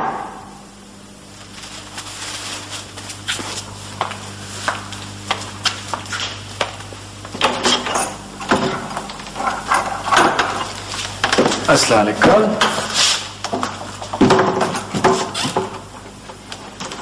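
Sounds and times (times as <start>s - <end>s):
low electrical hum: 0.0s - 17.0s
footsteps crossing a room: 1.2s - 7.6s, 8.4s - 17.0s.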